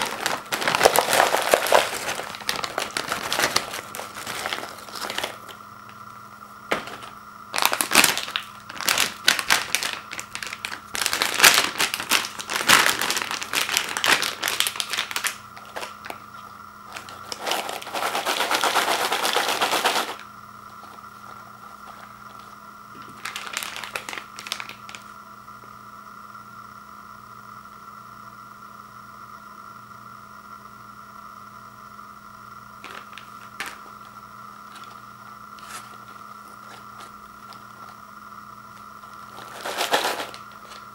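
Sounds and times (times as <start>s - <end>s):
chips pouring into plastic bowl: 0.0s - 5.6s, 6.7s - 16.2s, 16.9s - 20.2s, 20.8s - 25.1s, 32.8s - 34.1s, 34.7s - 35.0s, 35.6s - 38.0s, 38.7s - 40.9s
plastic bag crinkling: 0.0s - 6.0s, 6.7s - 25.1s, 32.8s - 38.0s, 38.7s - 40.9s
faint steady hum: 0.0s - 40.9s.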